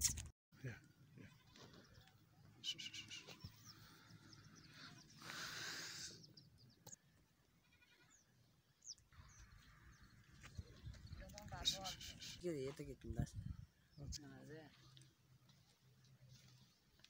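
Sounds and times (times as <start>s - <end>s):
goat bleating: 1.1s - 1.9s, 7.6s - 8.2s.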